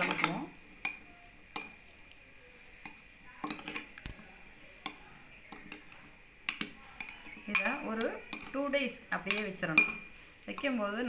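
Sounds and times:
spoon clinking against glass bowl: 2.8s - 3.9s, 6.5s - 8.6s, 9.2s - 10.8s.

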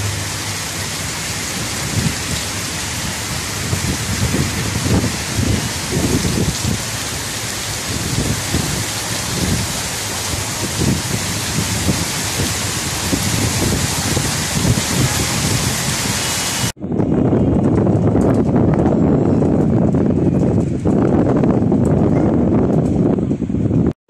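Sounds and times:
heavy rain pouring: 0.0s - 16.8s
low rumbling: 0.0s - 23.9s.

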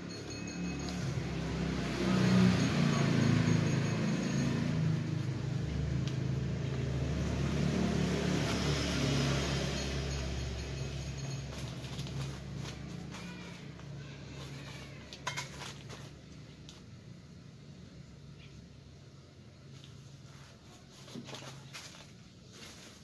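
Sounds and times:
vehicle engine running: 0.0s - 14.9s.

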